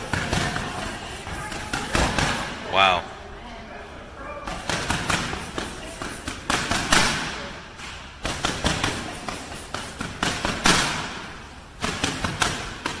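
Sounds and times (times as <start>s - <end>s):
boxing gloves slapping focus mitts: 0.0s - 2.5s, 4.5s - 13.0s.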